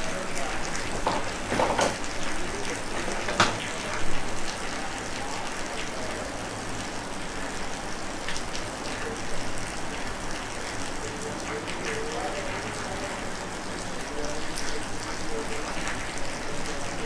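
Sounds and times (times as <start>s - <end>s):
sharp clicks and knocks: 3.2s - 3.7s.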